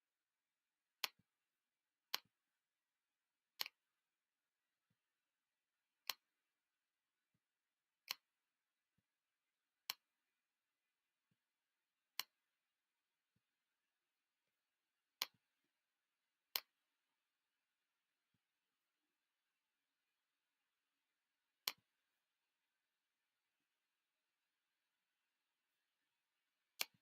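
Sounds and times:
mouse button clicking: 0:26.8 - 0:27.0.

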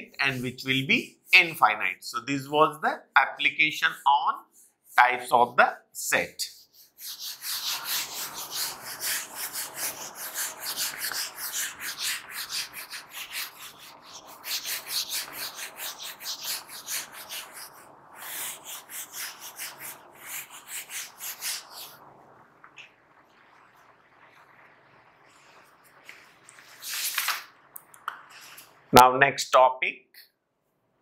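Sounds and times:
duster scrubbing whiteboard: 0:06.2 - 0:22.0, 0:26.1 - 0:27.5.

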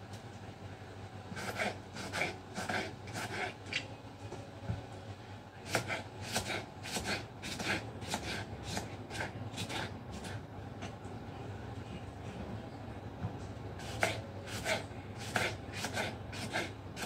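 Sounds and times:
knife slicing on a wooden board: 0:05.7 - 0:10.3.

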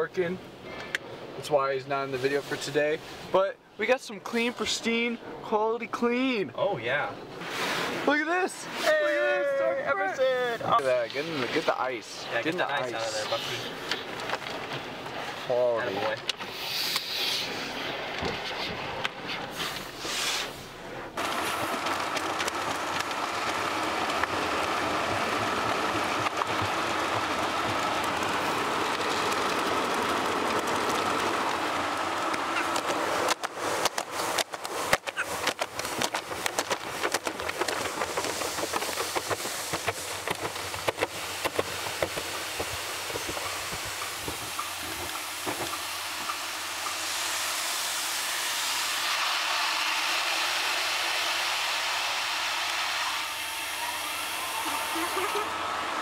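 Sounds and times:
cloth brushes slapping car: 0:07.4 - 0:09.0, 0:18.3 - 0:47.0
water spray hissing on car: 0:13.0 - 0:14.4, 0:15.2 - 0:17.8, 0:19.5 - 0:55.6.

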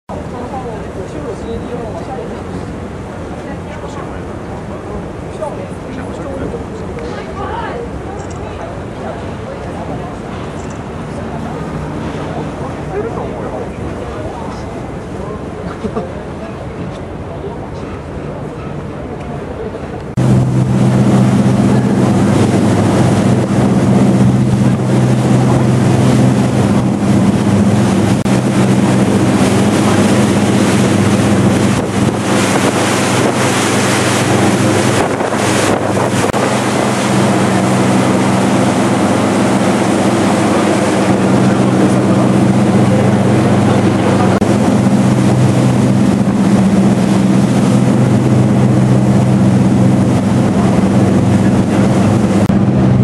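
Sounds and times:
ferry engine drone: 0:00.1 - 0:53.0
rush of wake water: 0:00.1 - 0:53.0
wind buffeting microphone: 0:16.7 - 0:53.0.

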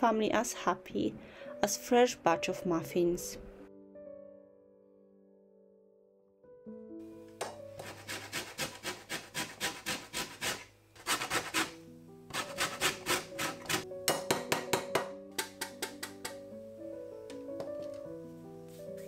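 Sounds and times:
lemon rasping on metal grater: 0:07.8 - 0:13.8.

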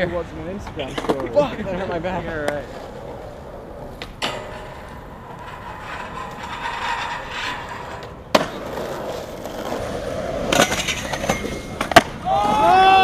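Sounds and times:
skateboard wheels rolling: 0:00.0 - 0:13.0
skateboard grinding metal rail: 0:01.8 - 0:12.2
skateboard landing slap: 0:08.3 - 0:09.7, 0:10.4 - 0:13.0.

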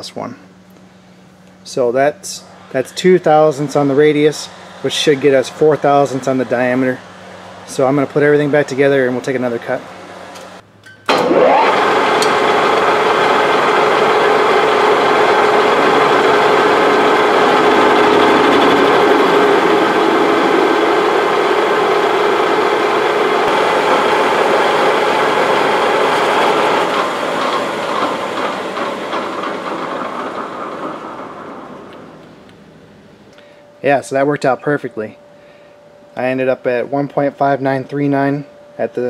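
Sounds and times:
lathe whine starting up: 0:02.3 - 0:36.9
lathe running and cutting steel: 0:02.5 - 0:32.5.

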